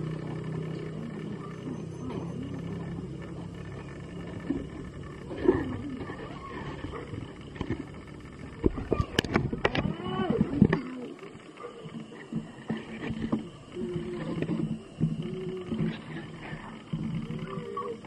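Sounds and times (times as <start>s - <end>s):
puppies growling: 0.0s - 18.0s.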